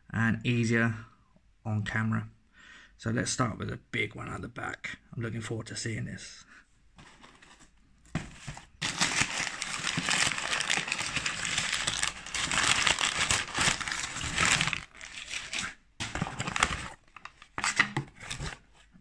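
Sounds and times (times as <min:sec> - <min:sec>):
packing paper crinkling: 0:07.0 - 0:18.6.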